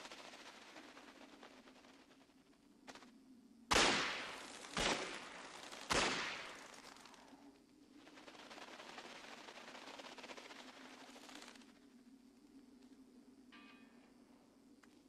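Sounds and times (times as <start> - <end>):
loud sharp bangs with echo: 3.7 - 6.6.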